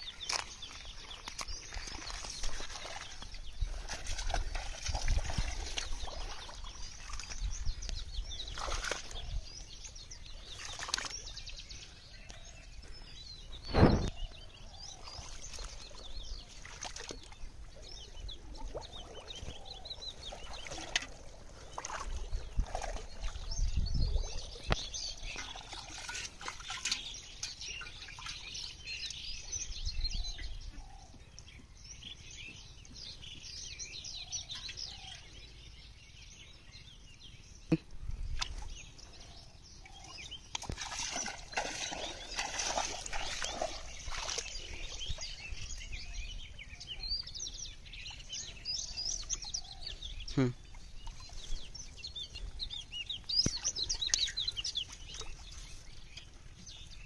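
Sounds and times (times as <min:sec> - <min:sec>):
pond water splashing: 0:00.0 - 0:29.9, 0:37.7 - 0:57.0
birds chirping: 0:00.0 - 0:57.0
sharp thump: 0:13.7 - 0:14.2.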